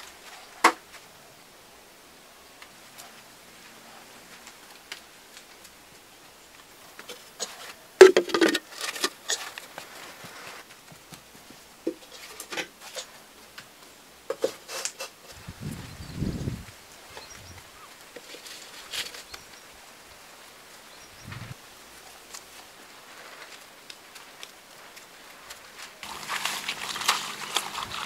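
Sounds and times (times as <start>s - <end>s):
clay pots knocking and clattering: 7.1s - 9.6s
pot scraping on earthen pillar: 7.1s - 9.6s, 26.0s - 28.0s.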